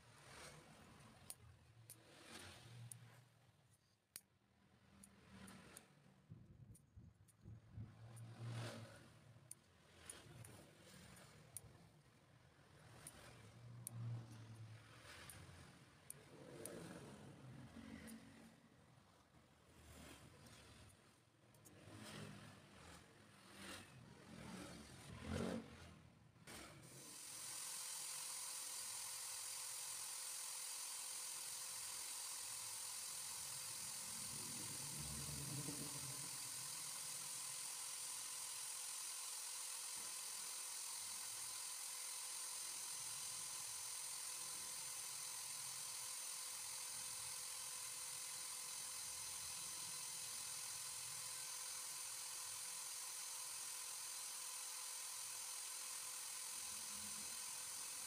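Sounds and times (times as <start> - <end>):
electric drill whining: 26.9 - 58.0.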